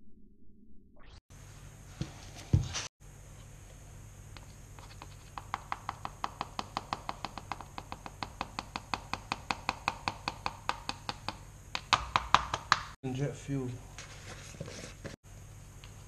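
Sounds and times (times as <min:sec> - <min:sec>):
rapid tapping on plastic funnel: 0:04.8 - 0:13.0.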